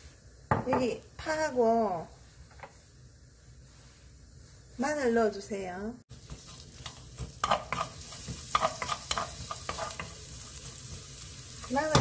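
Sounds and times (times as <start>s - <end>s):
onion and garlic sizzling in oil: 0.0s - 12.0s
wooden spatula scraping pan: 6.2s - 12.0s.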